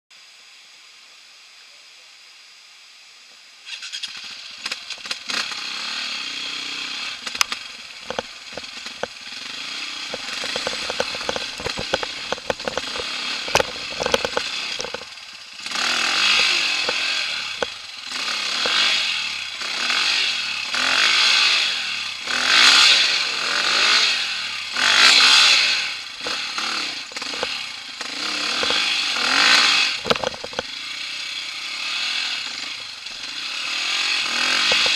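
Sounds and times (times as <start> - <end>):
dirt bike engine revving: 3.7 - 34.9
stones knocking and clattering: 7.3 - 9.2, 10.1 - 15.1, 27.1 - 27.6, 30.0 - 30.7.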